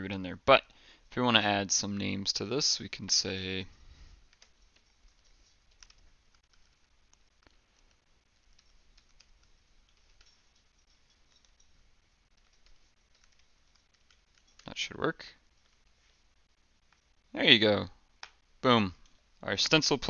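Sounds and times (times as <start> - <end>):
keyboard typing: 4.3 - 14.8.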